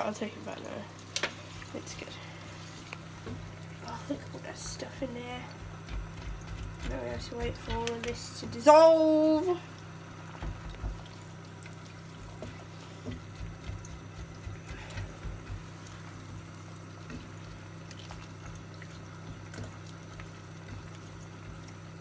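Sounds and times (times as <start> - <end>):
steady low hum: 0.0 - 22.0
spatula tapping and scraping pan: 5.5 - 8.3.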